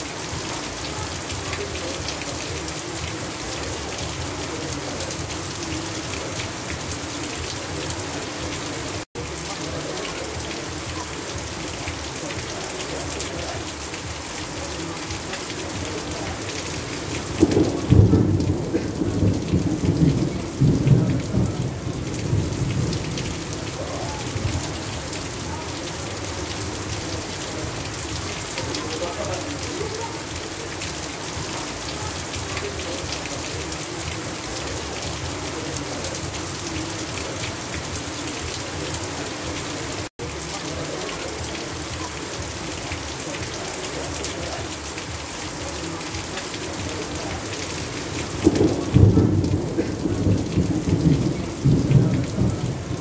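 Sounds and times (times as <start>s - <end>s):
heavy rain: 0.0s - 53.0s
water running off roof: 0.0s - 53.0s
thunder rumbling: 15.9s - 28.8s, 48.0s - 53.0s.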